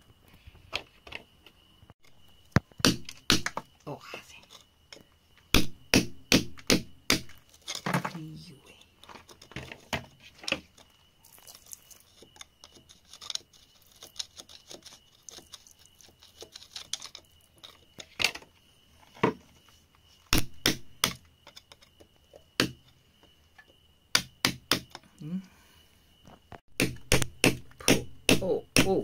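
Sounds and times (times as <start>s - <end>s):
metal tool scraping earth: 7.3s - 18.2s.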